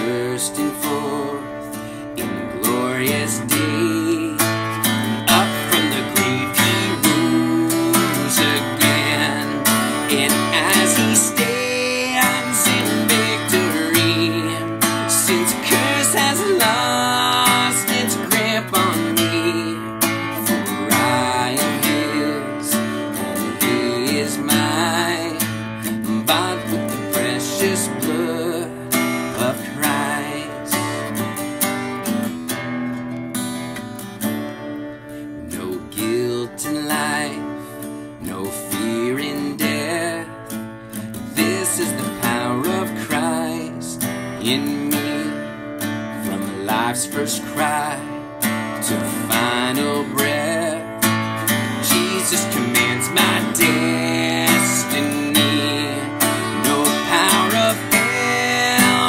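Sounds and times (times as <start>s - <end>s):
man singing: 0.0s - 31.6s, 35.4s - 59.0s
acoustic guitar strumming: 0.0s - 59.0s.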